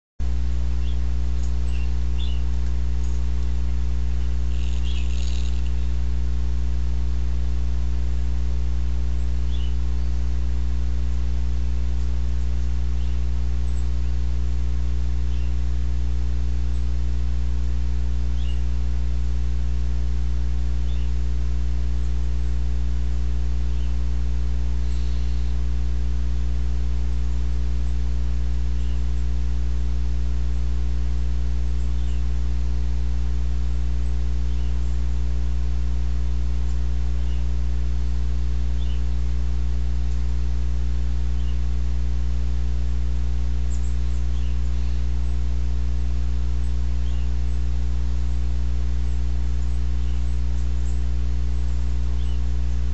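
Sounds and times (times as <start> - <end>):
electrical mains hum: 0.2 - 52.9
faint high chirps: 0.7 - 6.0, 24.8 - 25.6.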